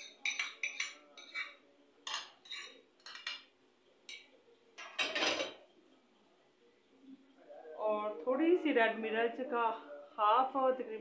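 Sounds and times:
utensils clinking against bowl: 0.0s - 3.5s, 4.1s - 5.6s.

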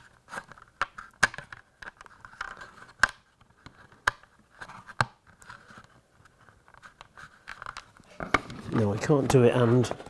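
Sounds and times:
plastic sheet scratchy rubbing: 8.0s - 10.0s.

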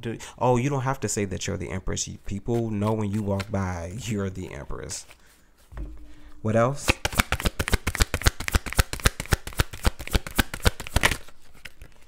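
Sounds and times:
cards being shuffled: 2.5s - 3.6s, 6.9s - 12.0s.

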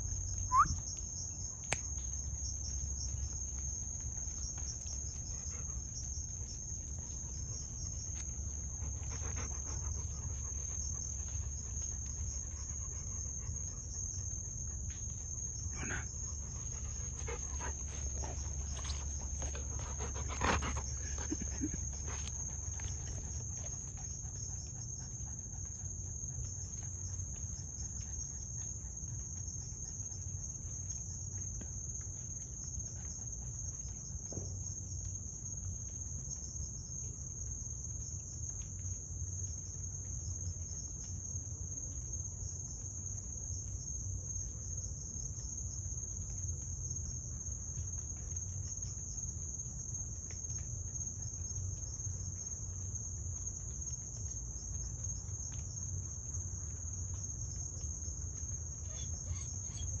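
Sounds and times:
crickets trilling: 0.0s - 60.0s.

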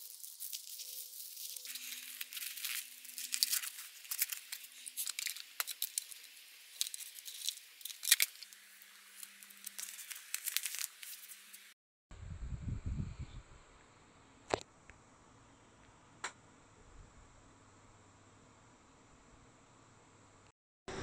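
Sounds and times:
paper and cardboard crinkling: 0.0s - 11.7s.

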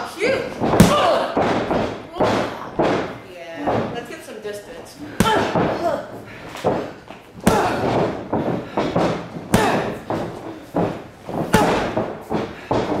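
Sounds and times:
punches thudding and slapping: 0.0s - 4.1s, 5.1s - 13.0s.

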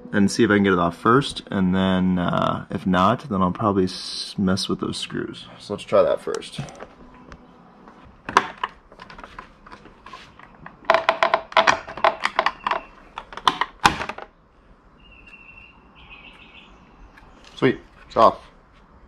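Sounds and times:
plastic clicking and creaking: 8.2s - 14.3s.

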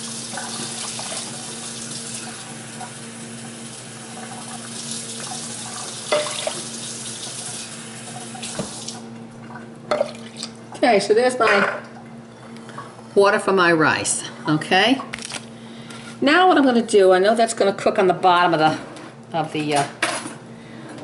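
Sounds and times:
tap water running into cup: 0.0s - 10.6s.

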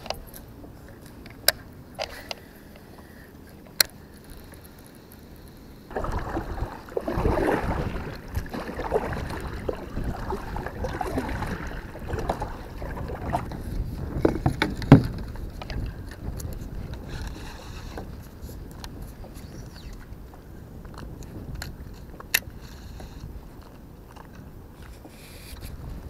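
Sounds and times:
kayak paddle strokes splashing: 5.2s - 15.8s.

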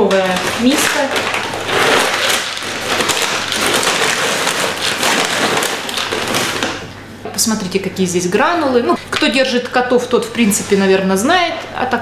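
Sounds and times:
pellets pouring into plastic jug: 0.0s - 6.9s.

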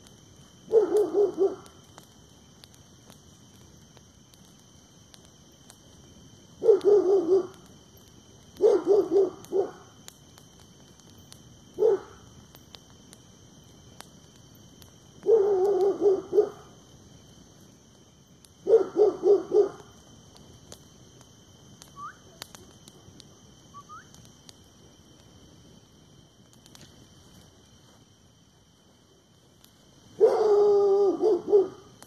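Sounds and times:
dog barking: 0.7s - 1.6s, 6.6s - 7.5s, 8.6s - 9.8s, 11.8s - 12.2s, 15.2s - 16.6s, 18.6s - 19.8s, 30.2s - 31.8s.

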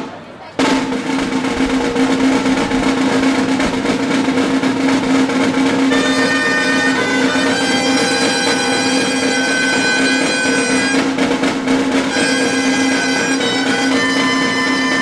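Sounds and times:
drums playing: 0.0s - 15.0s
reed instruments playing: 0.0s - 15.0s.

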